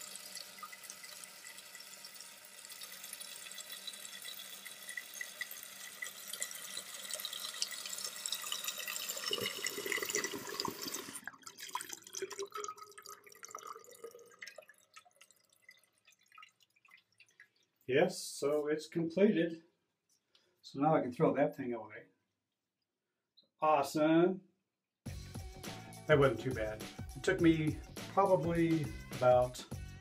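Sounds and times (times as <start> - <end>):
toilet fill valve hissing: 0.0 - 12.0
water dripping and trickling: 0.0 - 17.9.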